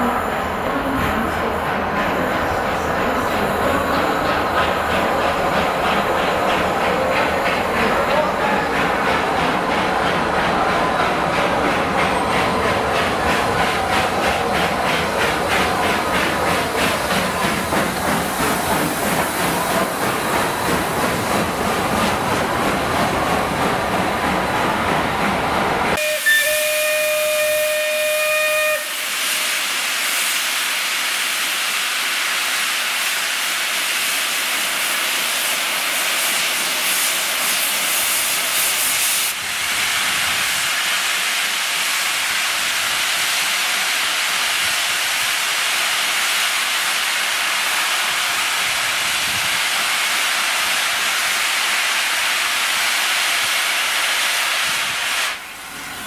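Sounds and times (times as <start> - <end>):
steam hissing: 0.0 - 24.5, 26.0 - 56.0
steam whistle: 26.0 - 29.7.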